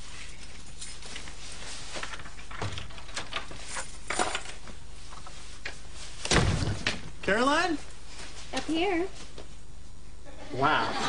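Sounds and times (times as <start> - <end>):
faint steady hiss: 0.0 - 11.0.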